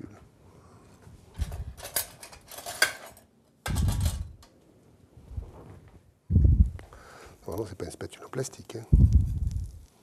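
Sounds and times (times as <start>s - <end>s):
metal utensils clinking: 1.4s - 4.3s.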